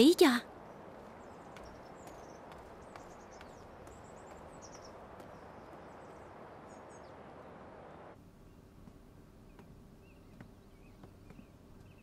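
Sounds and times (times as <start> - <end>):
steady background noise: 0.0 - 12.0
high bird chirps: 0.7 - 7.2.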